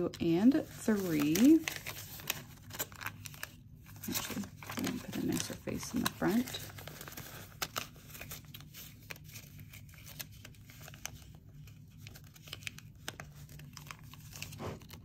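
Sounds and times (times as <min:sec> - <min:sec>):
paper bills rustling: 0:00.4 - 0:15.0.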